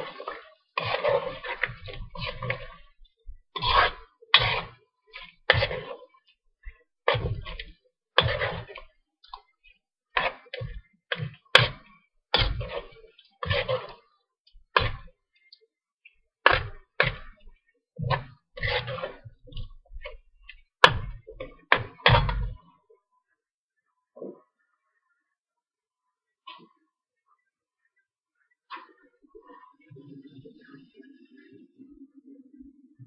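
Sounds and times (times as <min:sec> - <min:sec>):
metal spoon scraping a wok: 0:00.0 - 0:02.8, 0:03.6 - 0:04.8.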